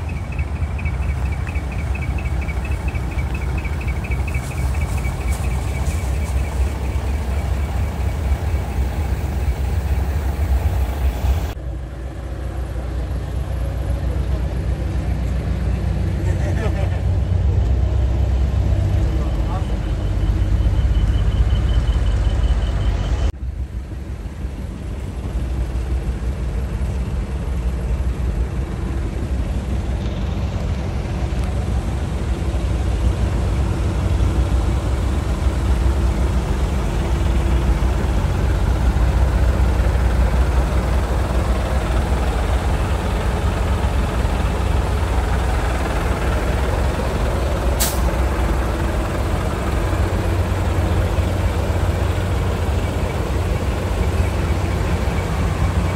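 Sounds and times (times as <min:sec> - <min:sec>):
truck engines rumbling: 0:00.0 - 0:55.9
sharp hiss of air: 0:47.8 - 0:48.2.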